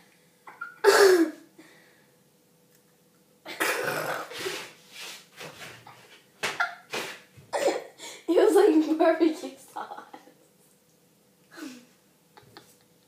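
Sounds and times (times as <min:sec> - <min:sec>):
girl coughing and spluttering: 0:00.5 - 0:01.4, 0:03.5 - 0:04.3, 0:07.5 - 0:08.0.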